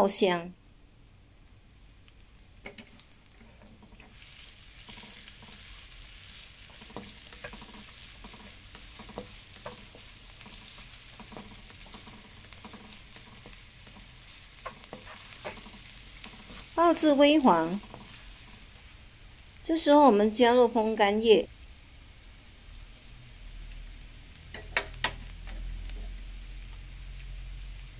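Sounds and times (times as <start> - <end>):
food sizzling in oil: 1.8 - 27.9
spatula scraping wok: 2.6 - 19.0.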